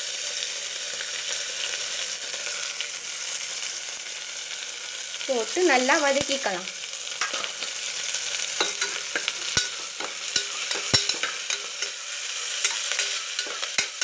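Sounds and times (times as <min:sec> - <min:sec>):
onions sizzling in oil: 0:00.0 - 0:14.0
utensil scraping against pot: 0:08.6 - 0:14.0.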